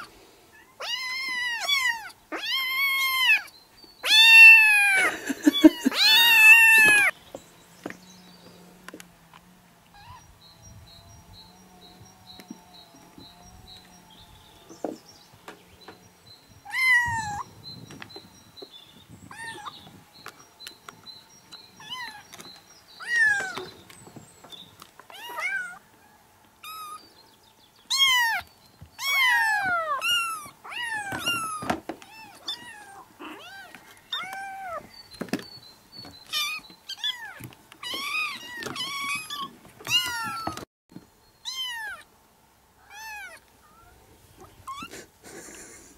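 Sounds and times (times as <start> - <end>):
kittens meowing: 0.0 - 7.2, 9.9 - 10.3, 16.6 - 17.5, 19.2 - 20.0, 21.8 - 22.4, 23.0 - 23.7, 25.1 - 25.8, 26.6 - 27.0, 27.9 - 34.9, 36.2 - 40.6, 41.4 - 42.1, 42.8 - 45.0.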